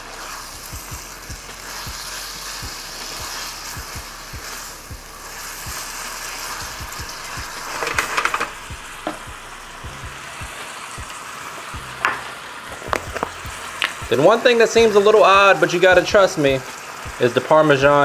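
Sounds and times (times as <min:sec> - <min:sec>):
pasta sizzling in a skillet: 0:00.0 - 0:18.0.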